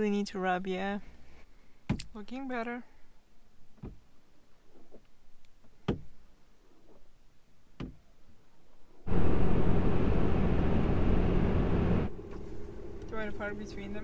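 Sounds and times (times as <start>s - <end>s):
engine and tyre drone in cab: 9.1s - 14.0s.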